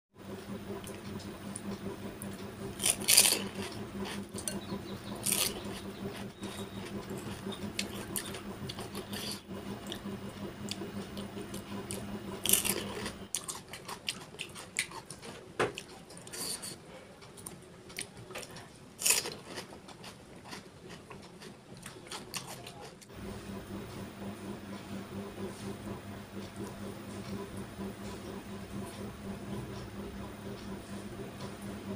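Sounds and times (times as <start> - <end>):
low hum: 0.2 - 13.3, 23.1 - 31.9.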